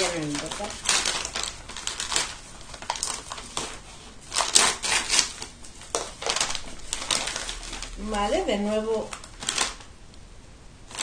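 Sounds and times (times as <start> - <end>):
packaging crinkling and rustling: 0.0 - 10.0.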